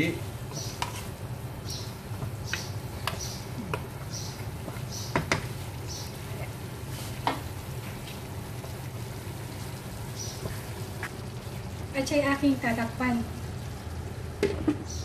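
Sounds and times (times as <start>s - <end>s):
meat frying in a wok: 0.0s - 15.0s
wooden spatula scraping: 0.5s - 1.2s
spatula knocking on pan: 4.6s - 5.5s.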